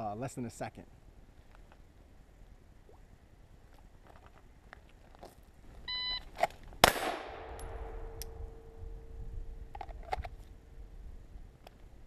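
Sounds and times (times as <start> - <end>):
pistol shot echoing: 6.8 - 8.7.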